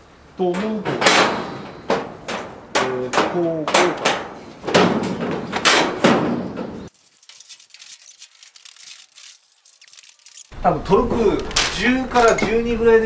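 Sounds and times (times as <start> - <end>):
metal shed parts knocking: 0.4 - 6.9.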